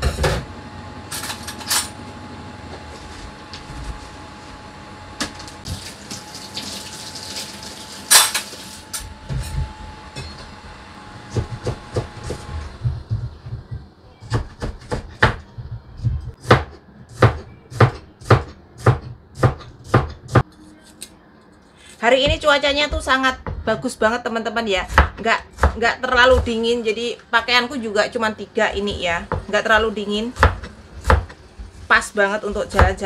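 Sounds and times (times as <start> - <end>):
tap water running into sink: 5.7 - 8.7
knife chopping on wooden board: 11.3 - 13.4, 14.3 - 15.4, 16.4 - 20.4, 28.8 - 31.4.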